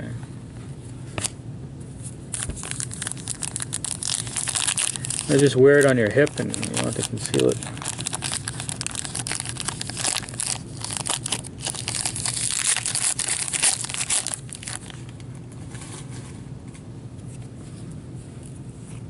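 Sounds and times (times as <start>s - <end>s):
wrapper crinkling and tearing: 2.3s - 15.1s
cards being handled: 2.3s - 15.2s.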